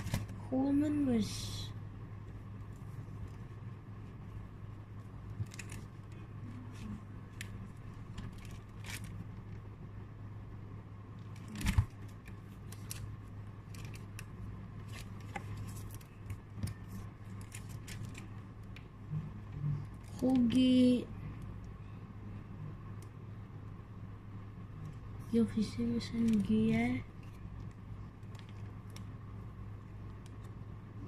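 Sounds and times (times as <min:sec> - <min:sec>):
cards and binder pages rustling: 0:00.0 - 0:00.4, 0:05.3 - 0:09.6, 0:11.2 - 0:18.4
steady low hum: 0:00.0 - 0:31.0.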